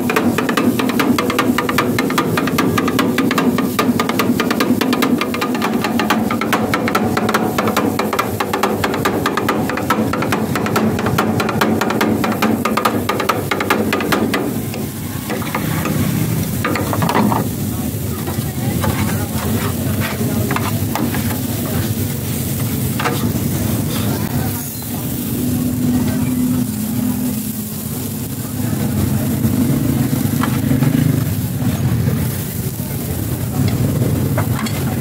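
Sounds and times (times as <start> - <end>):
metal spatulas chopping on griddle: 0.0 - 24.9, 30.1 - 31.3, 33.6 - 35.0
food sizzling: 0.0 - 35.0.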